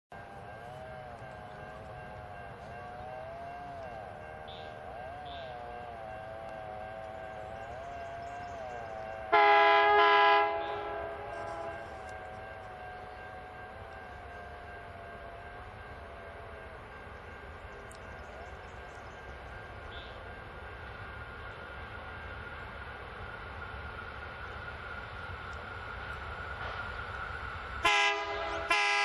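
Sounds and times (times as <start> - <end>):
diesel locomotive drone: 0.1 - 29.0
train horn blast: 8.7 - 14.1, 27.8 - 29.0.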